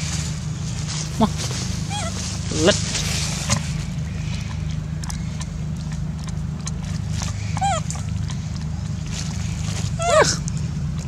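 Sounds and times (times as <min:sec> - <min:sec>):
steady low hum: 0:00.0 - 0:11.0
baby monkey squealing: 0:01.9 - 0:02.2, 0:07.3 - 0:08.1, 0:10.0 - 0:10.4.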